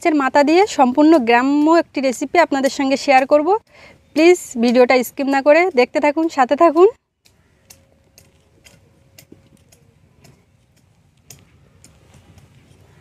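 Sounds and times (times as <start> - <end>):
corms clicking and knocking: 7.2 - 13.0.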